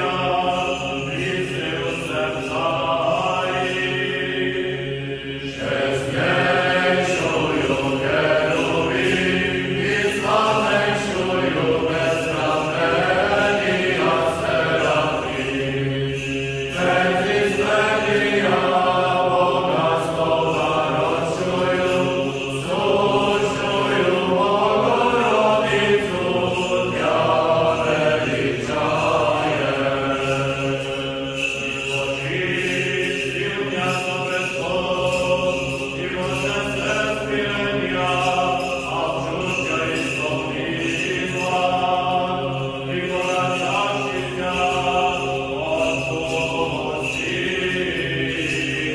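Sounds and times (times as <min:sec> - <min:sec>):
choral chant: 0:00.0 - 0:48.9.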